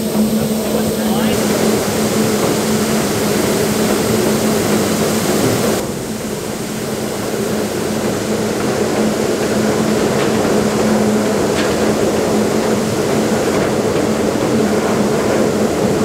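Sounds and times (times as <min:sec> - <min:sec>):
high hiss: 0:00.0 - 0:08.4
generator and grain equipment running: 0:00.0 - 0:16.0.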